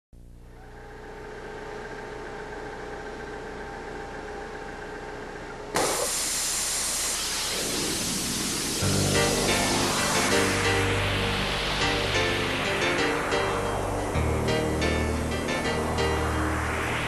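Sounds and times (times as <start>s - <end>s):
waterjet cutter hissing: 5.8s - 14.2s
machine hum: 7.2s - 17.0s.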